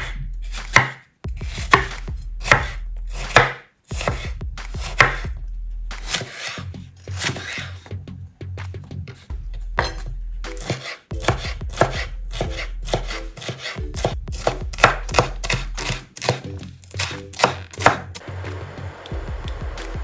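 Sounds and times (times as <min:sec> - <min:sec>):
knife chopping on wooden board: 0:00.0 - 0:05.3, 0:05.9 - 0:07.9, 0:09.8 - 0:18.2.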